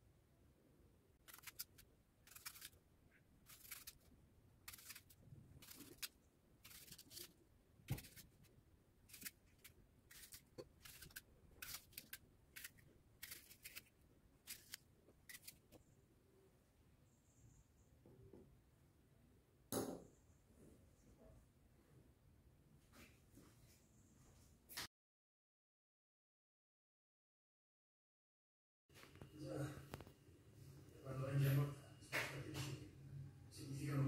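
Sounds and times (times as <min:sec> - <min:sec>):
knife slicing apple: 0:01.3 - 0:02.8, 0:03.5 - 0:04.1, 0:04.7 - 0:08.4, 0:09.1 - 0:13.9, 0:14.5 - 0:15.8.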